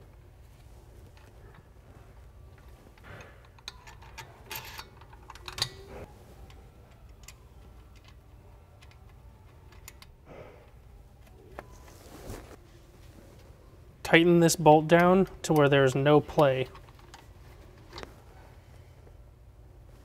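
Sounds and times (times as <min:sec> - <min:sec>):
low steady hum: 0:00.0 - 0:20.0
allen key metallic clicks: 0:03.0 - 0:05.9.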